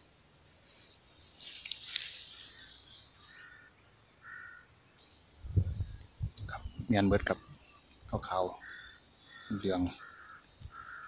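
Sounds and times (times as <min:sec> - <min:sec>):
high insect drone: 0:00.0 - 0:11.0
leaves rustling when handled: 0:01.2 - 0:03.5
short bird calls: 0:01.9 - 0:04.8, 0:07.3 - 0:11.0.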